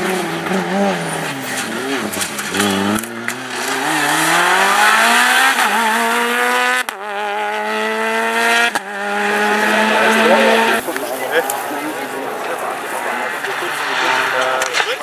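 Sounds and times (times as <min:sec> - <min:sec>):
rally car engine accelerating: 0:00.0 - 0:15.0.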